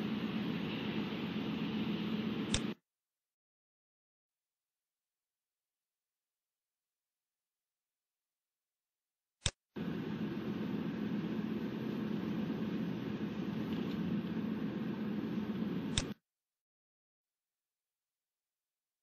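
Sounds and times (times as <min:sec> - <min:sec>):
sharp click: 0:02.5 - 0:02.8, 0:09.4 - 0:09.6, 0:15.9 - 0:16.2.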